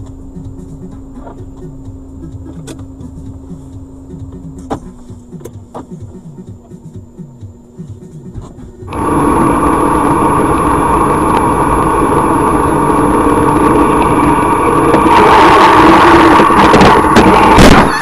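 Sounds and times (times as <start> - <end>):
road noise inside car: 0.0 - 18.0
car engine: 8.9 - 18.0.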